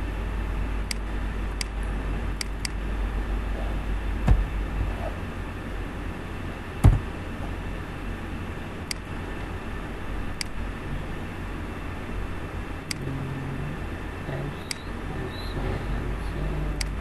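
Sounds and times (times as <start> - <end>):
low background rumble: 0.0 - 17.0
dull thumps: 4.2 - 5.0, 6.8 - 7.2
light clicks: 16.8 - 17.0.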